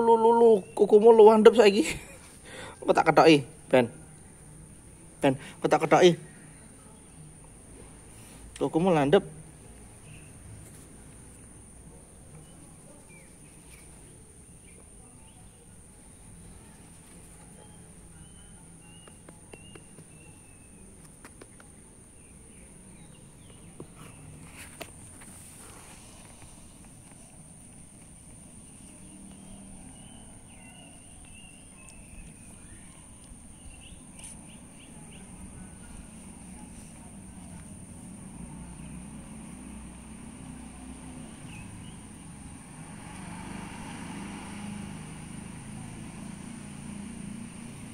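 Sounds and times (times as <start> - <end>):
bird chirps: 17.5 - 24.4, 28.7 - 36.0.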